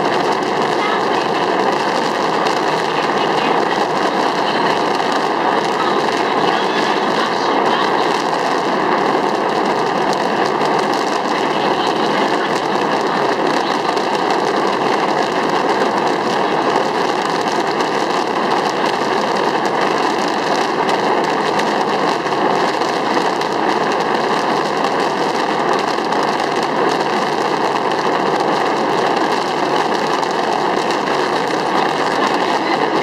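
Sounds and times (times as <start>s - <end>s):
fireworks rushing noise: 0.0s - 33.0s.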